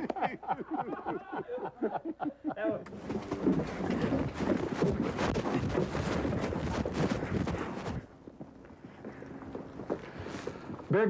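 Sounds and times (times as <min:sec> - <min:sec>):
footsteps and gear rustling: 0:02.9 - 0:11.0.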